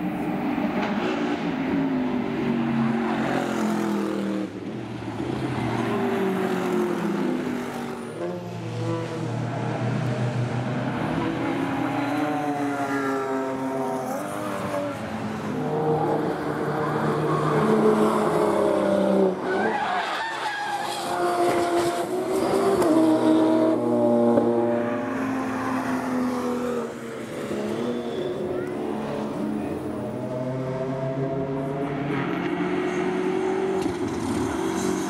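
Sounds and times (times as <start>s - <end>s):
racing car engines at full throttle: 0.0s - 35.0s
tyre squeal: 27.7s - 28.6s.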